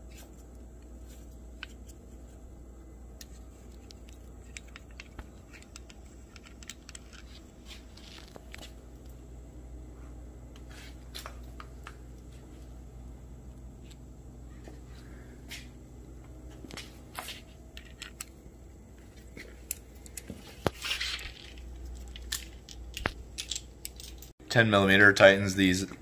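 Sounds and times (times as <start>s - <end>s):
low steady hum: 0.0s - 26.0s
metal parts clinking: 19.7s - 24.3s.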